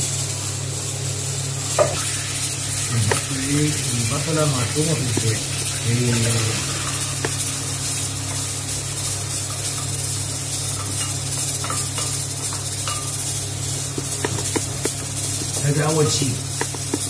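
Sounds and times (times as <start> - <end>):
onion sizzling in hot oil: 0.0 - 17.0
wooden spoon knocking pot: 13.7 - 17.0.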